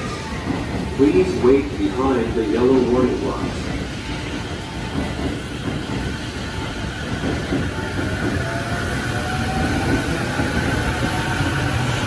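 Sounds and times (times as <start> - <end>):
wheels rumbling on rail: 0.0 - 12.0
electric train motors whining: 4.0 - 12.0.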